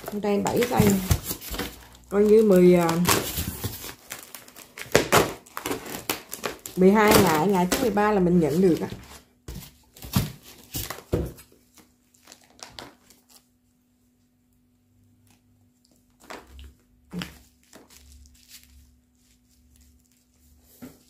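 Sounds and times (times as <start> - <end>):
styrofoam lid scraping and knocking: 0.0 - 1.8
plastic bags crinkling: 0.0 - 13.6, 16.0 - 21.0.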